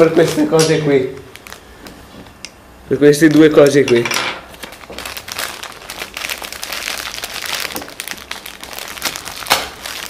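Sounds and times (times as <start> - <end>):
packaging crinkling: 1.2 - 2.0, 4.5 - 10.0.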